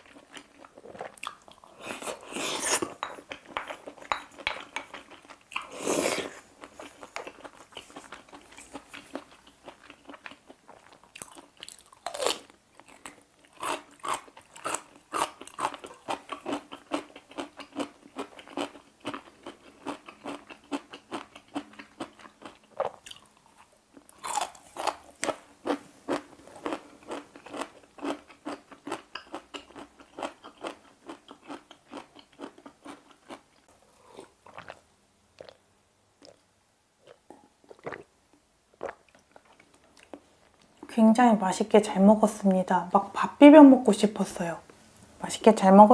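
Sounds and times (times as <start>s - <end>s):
crunchy chewing: 0.0s - 34.8s
slurping from a bowl: 1.8s - 3.0s, 5.6s - 6.5s.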